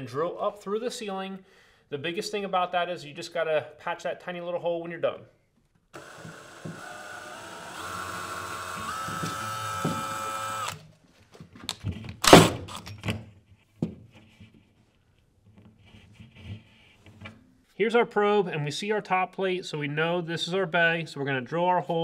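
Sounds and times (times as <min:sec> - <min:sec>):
cordless drill motor whine: 0:06.0 - 0:10.8.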